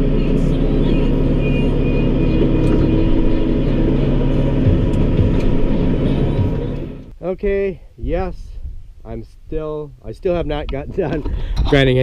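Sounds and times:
tractor engine running: 0:00.0 - 0:07.1.

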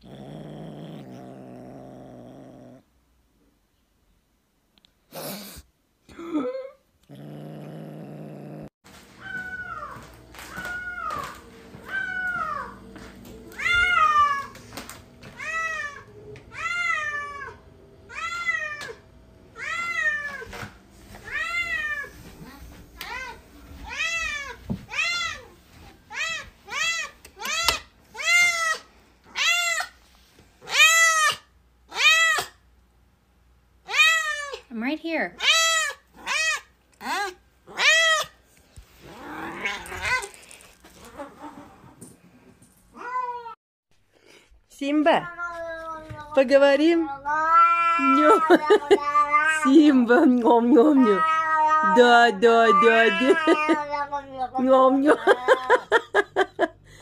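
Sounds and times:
cat meowing: 0:47.2 - 0:49.7, 0:51.0 - 0:52.0.

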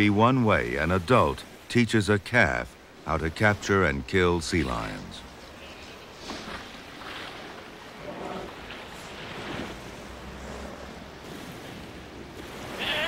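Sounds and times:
ocean surf washing onto beach: 0:00.0 - 0:13.0
loud wave splash: 0:06.4 - 0:13.0.

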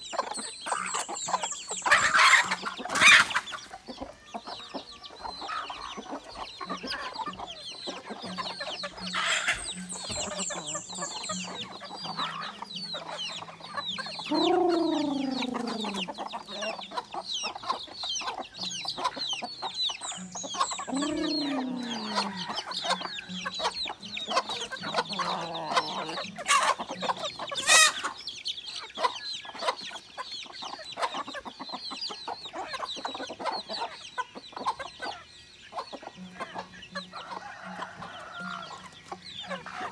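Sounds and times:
chickens clucking: 0:00.0 - 0:39.9
high chirping din: 0:03.6 - 0:28.1
drawn-out falling calls: 0:05.4 - 0:28.2.

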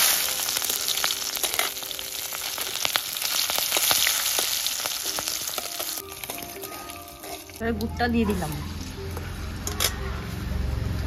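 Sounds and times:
spices crackling and sizzling: 0:00.0 - 0:09.8
spatula stirring: 0:00.2 - 0:07.6.

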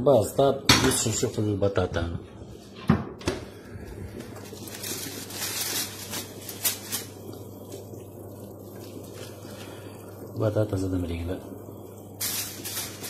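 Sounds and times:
aluminium foil crinkling: 0:04.1 - 0:08.0, 0:12.2 - 0:13.0.

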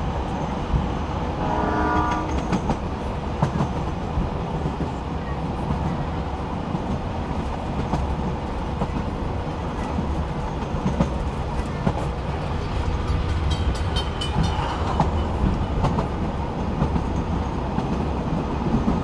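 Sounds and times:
train wheels rumbling on rails: 0:00.0 - 0:19.0
locomotive horn: 0:01.4 - 0:02.5.

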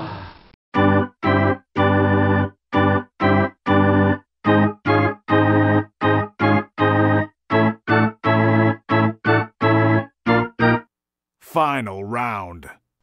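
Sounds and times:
electronic organ chords: 0:00.8 - 0:10.9.

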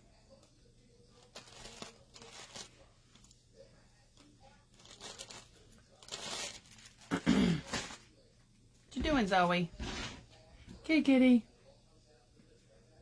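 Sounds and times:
faint rustling and handling noises: 0:00.0 - 0:11.0
soft scraping and crinkling: 0:00.3 - 0:08.3.

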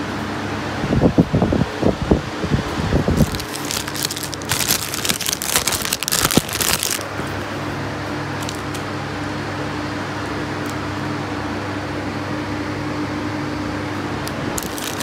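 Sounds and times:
steady hum: 0:00.0 - 0:15.0
plastic bags crinkling: 0:03.2 - 0:07.1, 0:08.4 - 0:08.8, 0:14.6 - 0:15.0.

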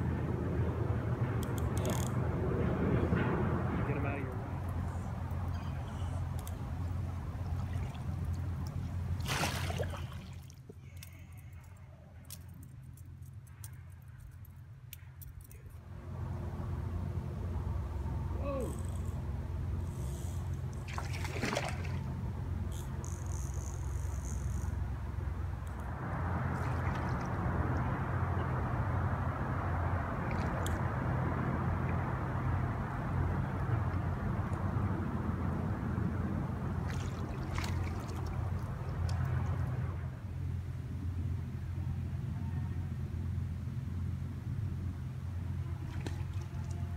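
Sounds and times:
river water rumbling: 0:00.0 - 0:13.5, 0:15.6 - 0:46.9
wind: 0:00.0 - 0:46.9
fish splashing: 0:07.4 - 0:11.3, 0:20.8 - 0:22.1, 0:36.8 - 0:39.5.

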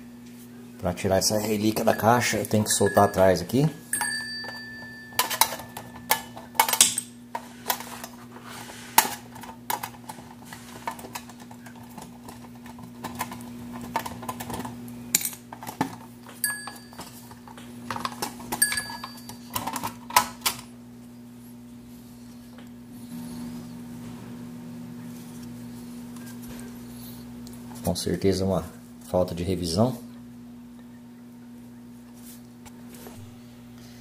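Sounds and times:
clock bells ringing: 0:01.6 - 0:06.3, 0:16.4 - 0:17.2, 0:18.6 - 0:19.5.

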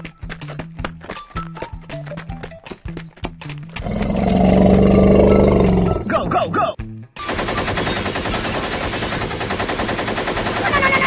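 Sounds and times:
low animal call: 0:03.8 - 0:06.1
machine-gun fire sound effects: 0:07.2 - 0:11.0.

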